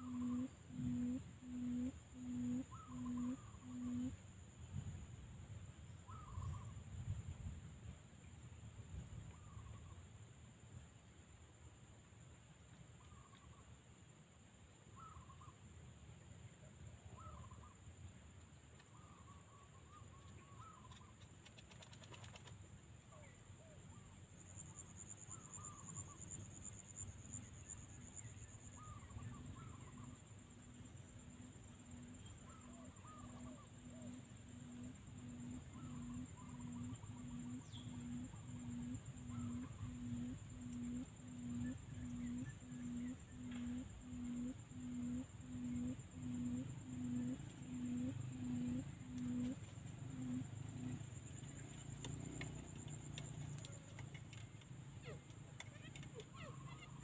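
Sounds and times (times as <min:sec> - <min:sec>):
low pulsing hoot: 0:00.0 - 0:04.2, 0:31.3 - 0:51.7
quail chirps: 0:00.0 - 0:04.2, 0:18.8 - 0:22.5.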